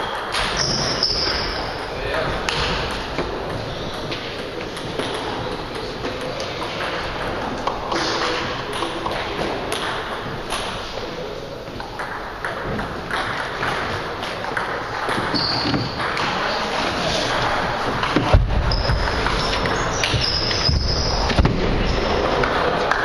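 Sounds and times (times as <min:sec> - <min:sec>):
table tennis balls clicking: 0:00.0 - 0:10.9, 0:11.7 - 0:16.5, 0:17.2 - 0:23.0
short high squeak: 0:00.5 - 0:01.6.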